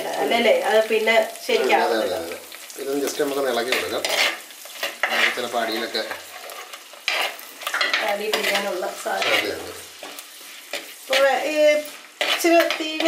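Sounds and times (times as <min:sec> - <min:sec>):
lentils sizzling in hot oil: 0:00.0 - 0:13.0
spoon scraping a clay pot: 0:03.7 - 0:11.4, 0:12.2 - 0:12.8.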